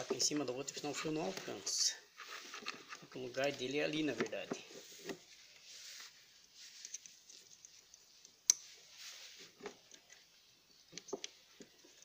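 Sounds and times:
wires rustling: 0.0 - 10.4.

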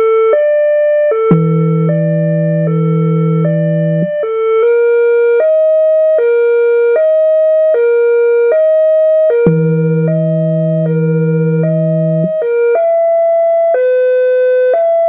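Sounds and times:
deep low siren tone: 0.0 - 15.0
two-tone electronic siren: 0.0 - 15.0.

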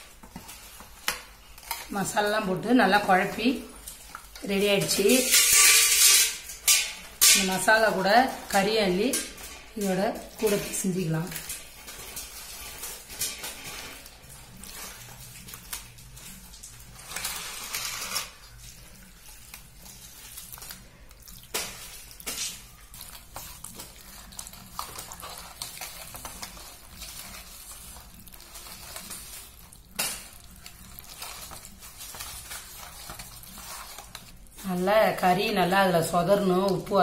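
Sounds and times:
hand squelching meat in paste: 18.4 - 34.6.

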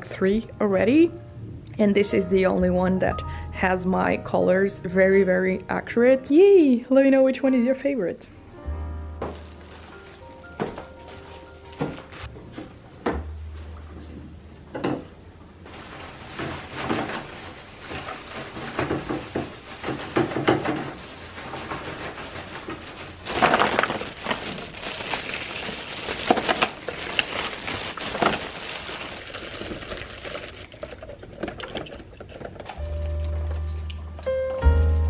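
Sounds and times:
plastic bags crinkling: 9.2 - 12.3, 15.7 - 33.5
rolls knocking against plastic baskets: 16.3 - 24.4.

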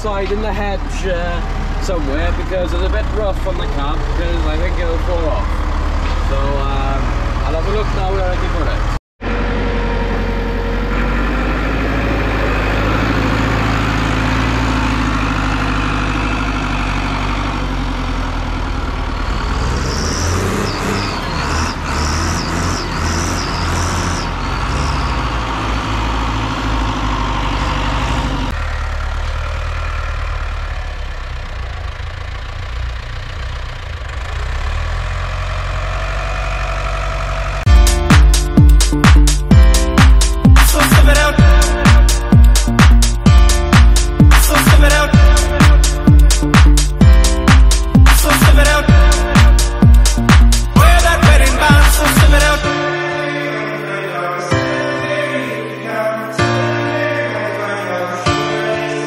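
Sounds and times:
tractor diesel engines: 0.0 - 59.0
short high squeaks: 19.8 - 25.6.

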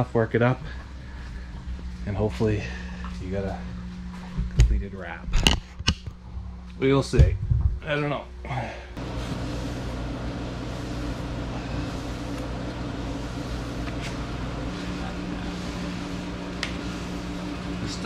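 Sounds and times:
fan machine humming and hissing: 0.0 - 18.0.

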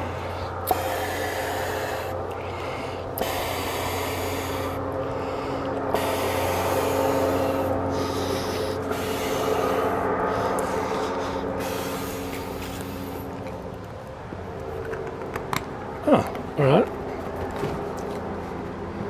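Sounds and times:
person inhaling: 0.0 - 13.4
person blowing into inflatable: 0.6 - 13.3.

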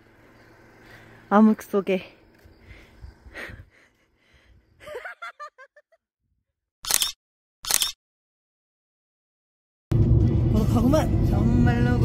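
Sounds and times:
woman laughing: 3.3 - 4.2, 4.8 - 6.1
camera shutter clicks: 6.8 - 8.0.

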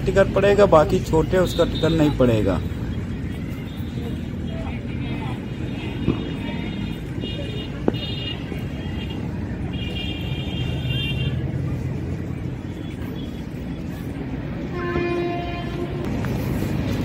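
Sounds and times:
road traffic rumble: 0.0 - 17.0
high-pitched multi-tone horn: 14.6 - 16.2
low vehicle horn: 14.7 - 16.2.

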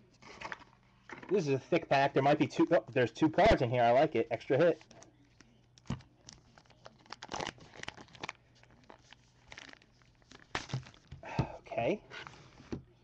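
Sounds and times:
plastic wrapper crinkling: 4.8 - 11.2.

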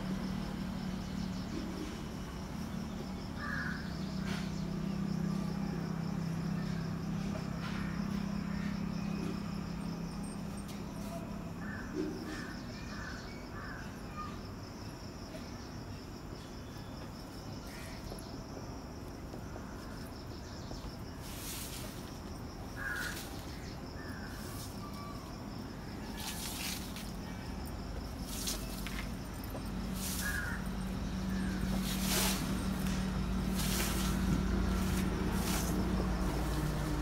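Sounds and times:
background hiss: 15.7 - 37.0.

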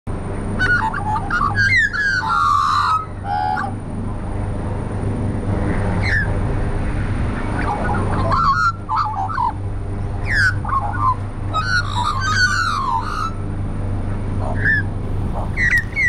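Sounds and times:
steady low hum: 0.1 - 16.0
magpies warbling: 0.5 - 3.8, 6.0 - 6.4, 7.3 - 9.6, 10.2 - 13.5, 14.4 - 16.0.

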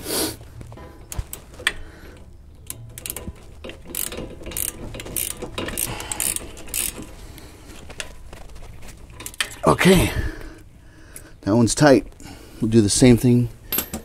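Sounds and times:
socket ratchet clicking: 2.6 - 7.0.

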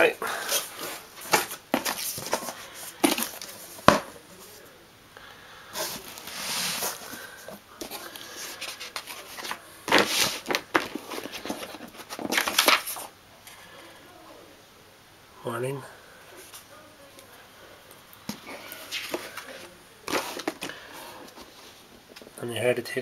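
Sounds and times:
paper sheets rustling: 0.0 - 4.6, 5.8 - 13.1, 18.3 - 22.3.

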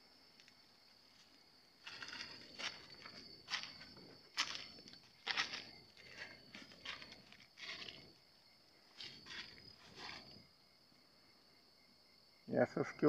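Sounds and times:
insects trilling at night: 0.0 - 13.0
footsteps: 0.4 - 10.4.

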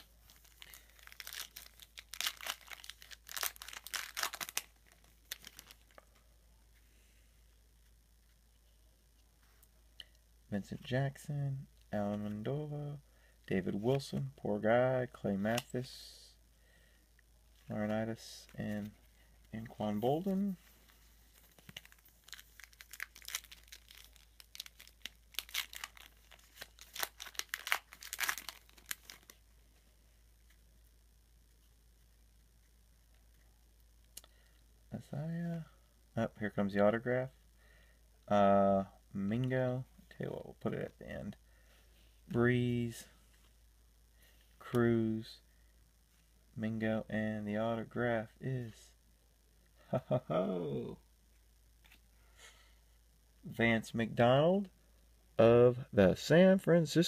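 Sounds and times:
foil wrapper crinkling: 0.0 - 6.0, 18.4 - 29.4.

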